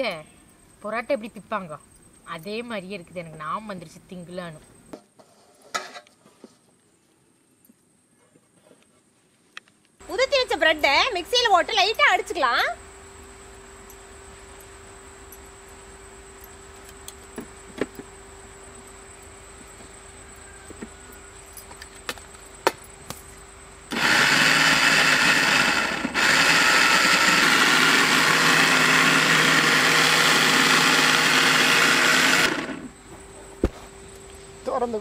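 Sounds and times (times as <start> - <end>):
mixer grinder motor: 23.9 - 33.0.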